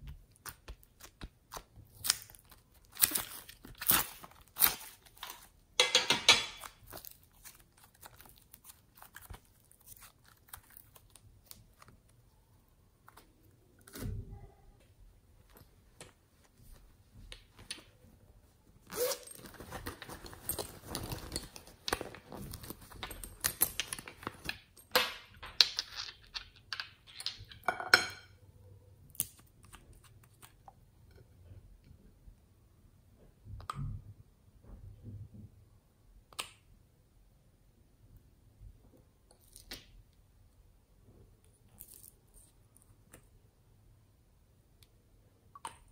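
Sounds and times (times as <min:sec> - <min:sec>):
plastic pieces clicking and crinkling: 0:00.3 - 0:12.2, 0:19.9 - 0:27.7.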